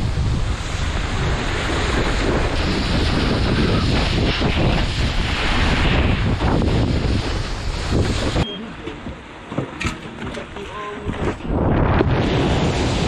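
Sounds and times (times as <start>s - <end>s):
wakeboard spray on water: 0.0s - 8.4s, 11.2s - 13.0s
wind buffeting microphone: 0.0s - 13.0s.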